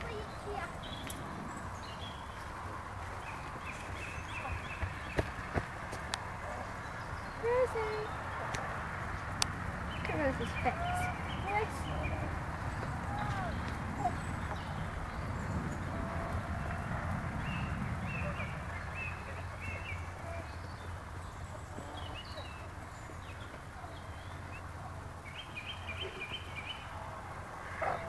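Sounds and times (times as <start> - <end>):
steady low rumble: 0.0 - 27.7
small birds chirping: 0.0 - 28.0.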